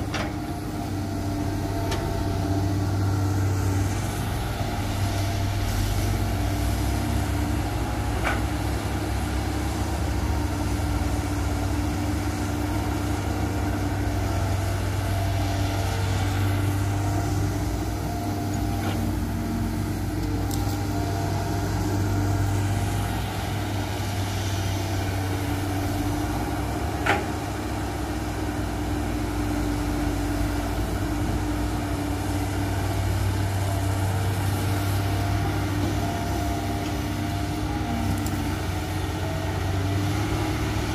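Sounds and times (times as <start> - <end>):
excavator diesel engine running: 0.0 - 40.9.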